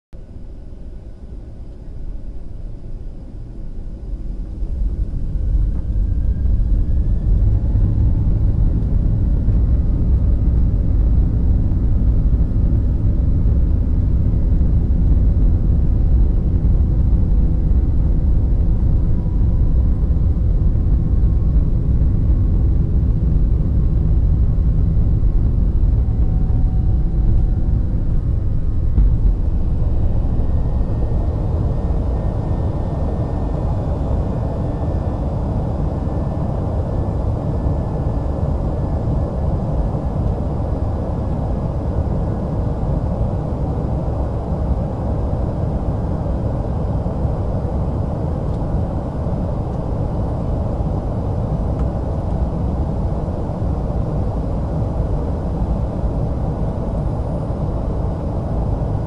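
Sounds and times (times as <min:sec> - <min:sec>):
drone low rumble: 0:00.2 - 0:59.0.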